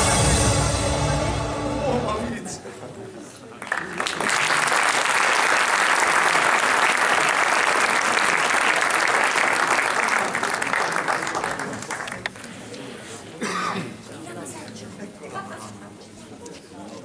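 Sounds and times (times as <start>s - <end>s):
audience applauding: 3.6s - 12.6s.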